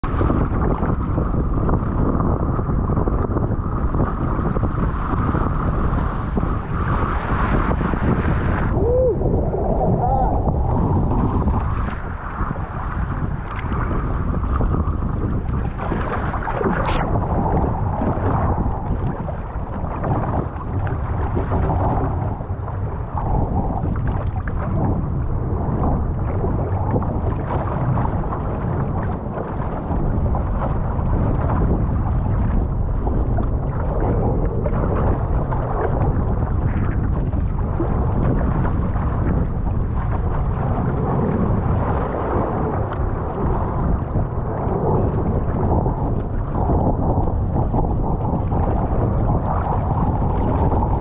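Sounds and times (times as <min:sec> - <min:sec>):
water sloshing along hull: 0:00.0 - 0:51.0
wind buffeting microphone: 0:00.0 - 0:51.0.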